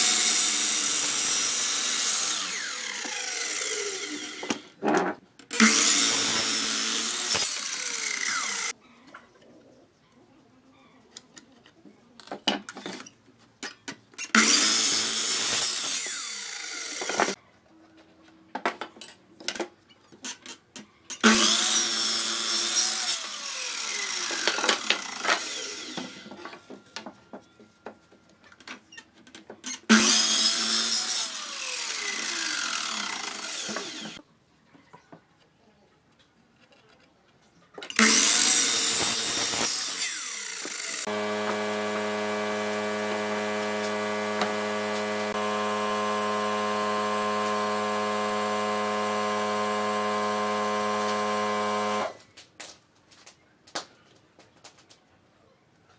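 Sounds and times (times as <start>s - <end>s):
mitre saw cutting wood: 0.0s - 4.8s, 5.5s - 8.8s, 14.4s - 17.4s, 21.2s - 26.4s, 29.9s - 34.2s, 37.9s - 52.2s
saw motor winding down: 0.0s - 4.8s, 5.5s - 8.7s, 14.4s - 17.4s, 21.2s - 26.3s, 29.9s - 34.2s, 38.0s - 52.2s.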